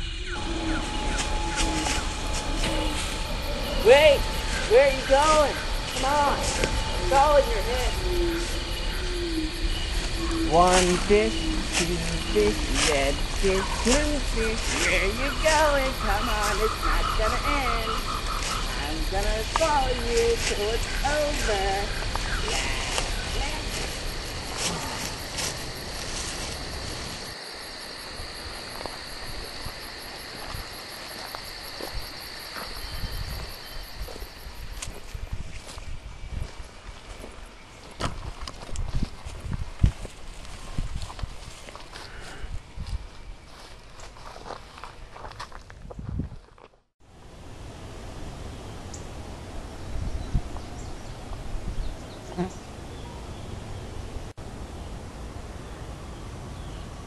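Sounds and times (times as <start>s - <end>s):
low rumble: 0.0s - 19.6s
steady hiss with low rumble: 0.0s - 31.3s, 47.1s - 57.0s
insects chorus buzzing: 0.0s - 45.3s.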